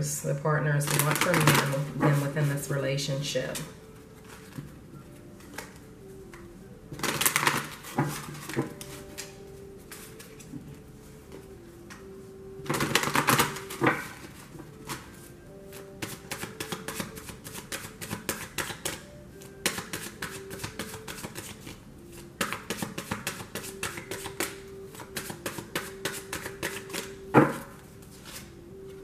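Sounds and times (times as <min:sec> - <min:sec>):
cards being shuffled: 0:16.0 - 0:19.0, 0:19.6 - 0:27.1.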